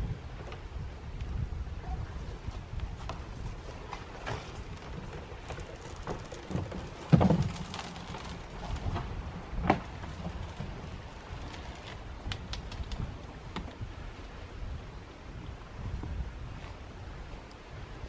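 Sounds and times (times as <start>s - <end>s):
low wind rumble: 0.0s - 18.0s
canoe hull thudding onto ground: 6.0s - 7.9s.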